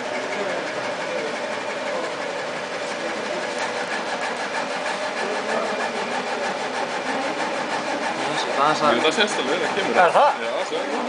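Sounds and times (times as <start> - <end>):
laser cutter whirring: 0.0 - 11.0.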